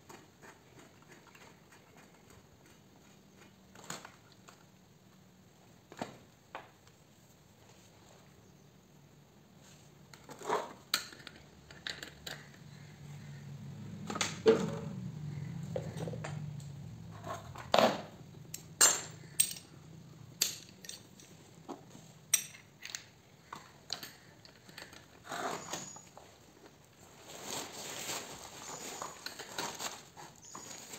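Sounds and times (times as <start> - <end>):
metal tools clinking: 18.5 - 19.8, 20.4 - 21.5, 22.3 - 26.2, 28.6 - 30.9.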